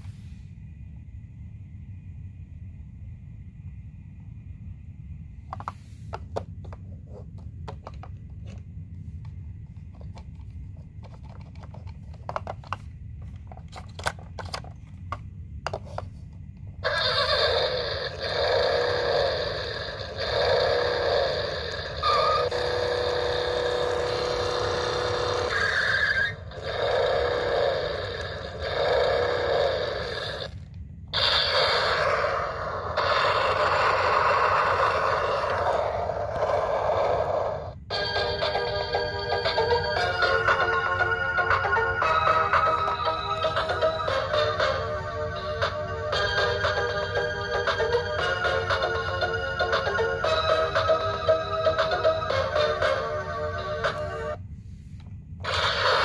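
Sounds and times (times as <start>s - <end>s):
clicks and handling noise: 5.5s - 16.7s
toy car electronic sound effects: 16.8s - 54.4s, 55.4s - 56.0s.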